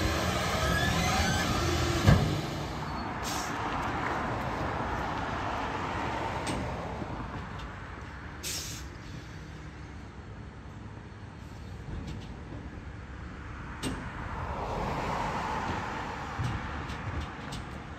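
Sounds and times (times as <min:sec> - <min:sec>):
distant garbage truck running: 0:00.0 - 0:04.8
short hydraulic hisses: 0:03.2 - 0:03.6, 0:08.4 - 0:09.2.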